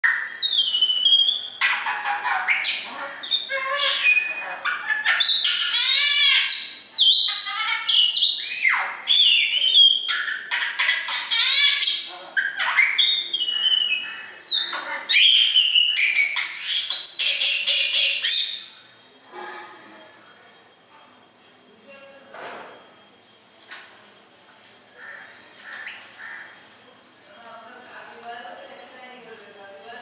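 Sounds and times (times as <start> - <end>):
caged birds whistling and squawking: 0.0 - 20.2.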